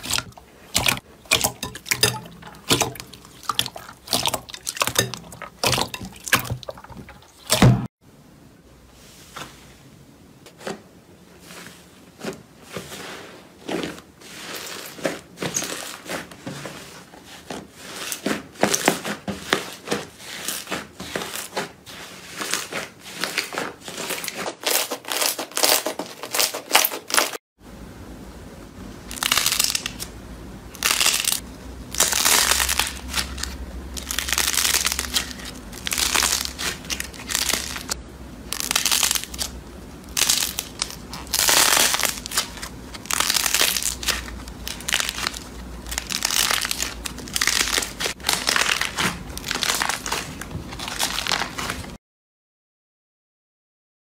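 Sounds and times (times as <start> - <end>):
slime squishing and squelching: 0.0 - 7.9, 11.4 - 27.4, 29.1 - 30.1, 30.7 - 52.0
low steady hum: 0.0 - 14.3, 27.6 - 52.0.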